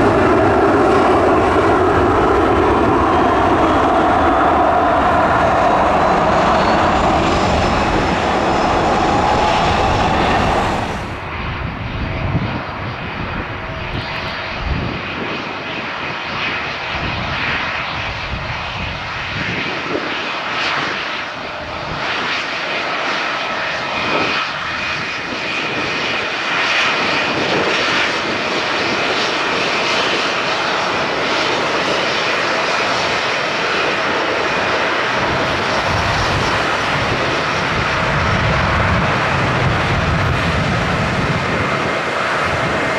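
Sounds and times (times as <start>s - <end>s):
deep drone: 0.0s - 11.8s
jet engines rushing and whining: 0.0s - 42.9s.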